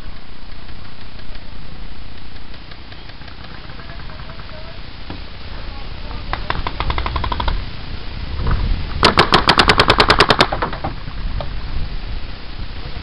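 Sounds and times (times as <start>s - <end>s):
paintball marker firing rapidly: 6.3s - 7.6s, 9.0s - 10.8s.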